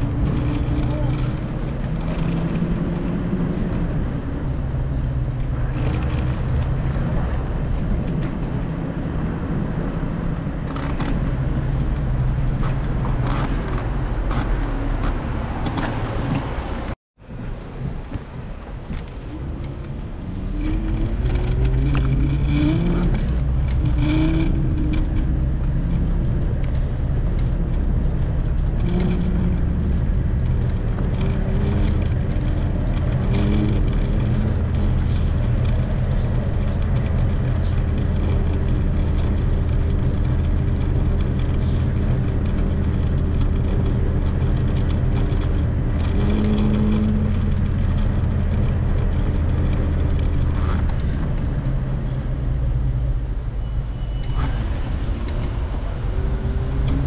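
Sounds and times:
vehicle engine accelerating: 0.0 - 17.0, 17.7 - 57.0
heavy low rumble: 0.0 - 57.0.

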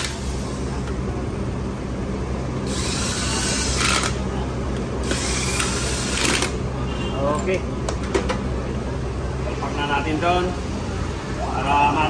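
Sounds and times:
handheld power tool: 2.7 - 4.2, 5.0 - 6.6.

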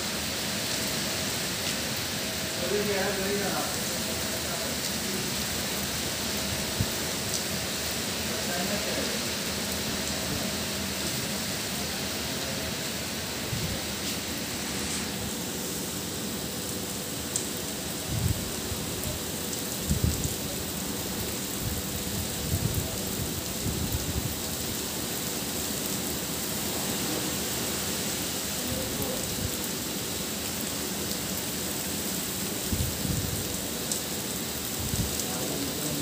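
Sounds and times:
rain hissing: 0.0 - 36.0.

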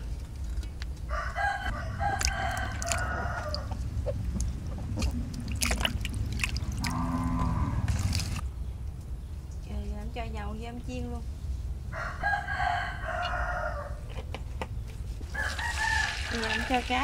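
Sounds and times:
rooster crowing: 1.1 - 3.8, 11.9 - 14.1, 15.3 - 16.7
water splashing and dripping: 2.1 - 8.4, 15.5 - 17.0.

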